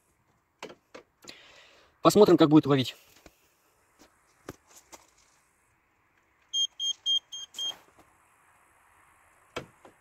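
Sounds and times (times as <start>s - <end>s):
short high electronic beeps: 6.6s - 7.8s.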